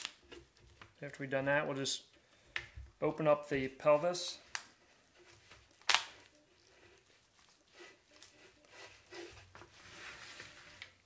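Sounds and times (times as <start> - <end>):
bone cracking: 5.7 - 6.3.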